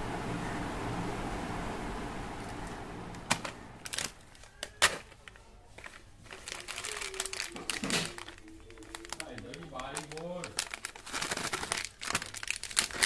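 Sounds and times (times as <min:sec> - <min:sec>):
candy wrappers crinkling: 0:03.4 - 0:13.0.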